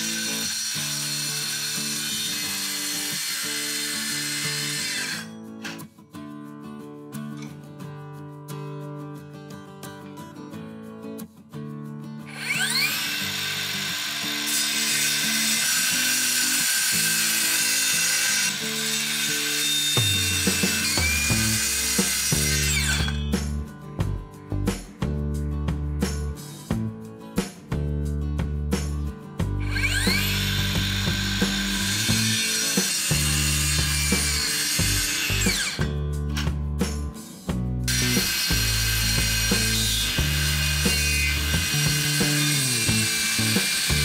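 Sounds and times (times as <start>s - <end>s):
saw blade rasping through wood: 0.0s - 5.3s, 12.3s - 23.4s, 29.6s - 35.9s, 37.9s - 44.0s
circular saw motor whine: 12.4s - 23.3s, 29.6s - 35.8s, 37.9s - 44.0s
background music with beat: 20.0s - 32.3s, 33.1s - 40.1s.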